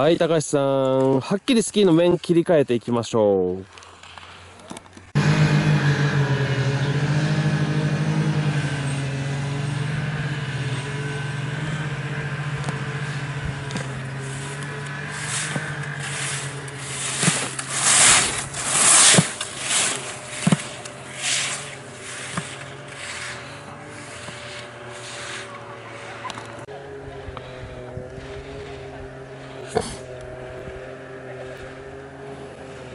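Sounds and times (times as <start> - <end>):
snowmobile engine running: 5.1 - 32.9
skis scraping on hard snow: 11.7 - 26.7.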